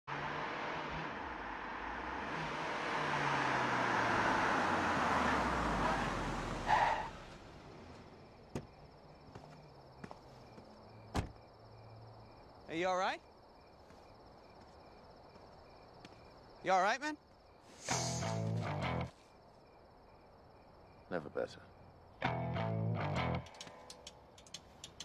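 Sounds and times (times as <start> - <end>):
car driving up: 0.1 - 11.4
brakes squealing: 0.1 - 11.5, 17.6 - 19.4
crickets chirping: 0.2 - 25.0.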